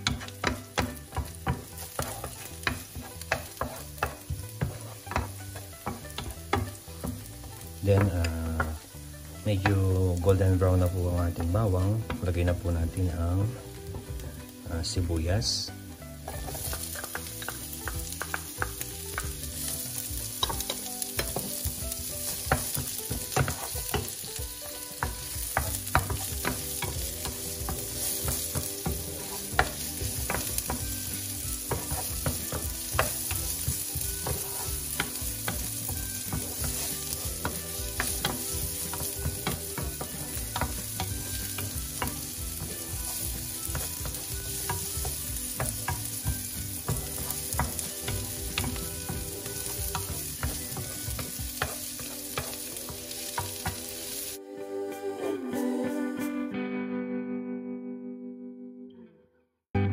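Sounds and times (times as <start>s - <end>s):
wooden spoon scraping a pan: 0.0s - 8.8s, 16.2s - 53.8s
onion sizzling in hot oil: 0.0s - 54.4s.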